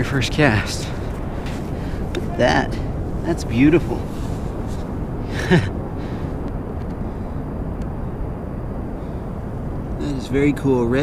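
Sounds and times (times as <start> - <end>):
ocean surf: 0.0 - 11.0
wind: 0.0 - 11.0.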